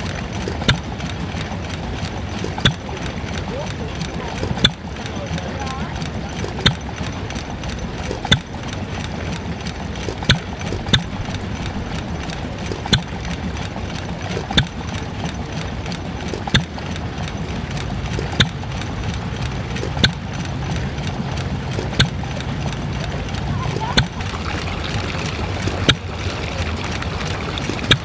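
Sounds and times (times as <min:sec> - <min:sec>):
water splashing into a tub: 0:23.8 - 0:28.0.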